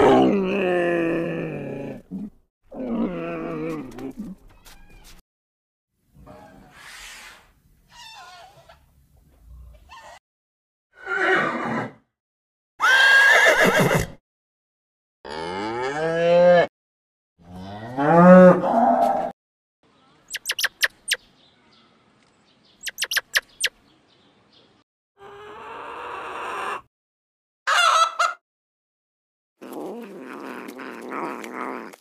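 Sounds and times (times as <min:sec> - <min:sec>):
squirrel chirping: 0:20.3 - 0:21.3, 0:22.8 - 0:23.8.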